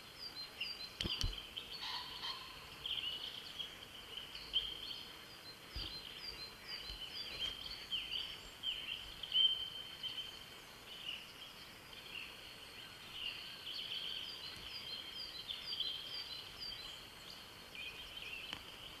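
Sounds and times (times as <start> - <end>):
songbirds singing: 0.0 - 19.0.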